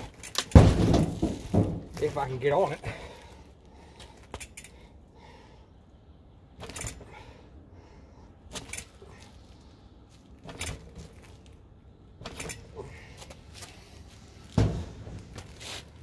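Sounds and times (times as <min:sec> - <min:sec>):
bike parts rattling: 0:00.0 - 0:04.9, 0:06.6 - 0:07.3, 0:08.5 - 0:09.4, 0:10.1 - 0:16.0.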